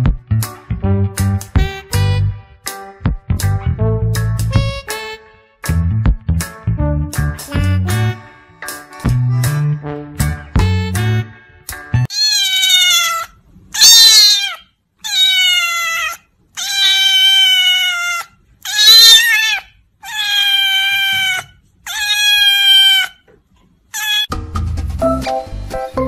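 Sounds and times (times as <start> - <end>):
cat meowing loudly: 12.1 - 23.2, 23.9 - 24.3.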